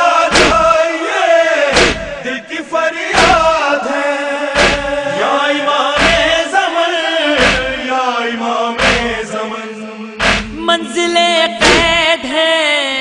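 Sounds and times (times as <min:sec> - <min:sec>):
voices chanting: 0:00.0 - 0:12.0
heavy beat: 0:00.3 - 0:00.8, 0:01.8 - 0:02.2, 0:03.2 - 0:03.6, 0:04.6 - 0:05.1, 0:06.0 - 0:06.4, 0:07.4 - 0:07.8, 0:08.8 - 0:09.3, 0:10.2 - 0:10.6.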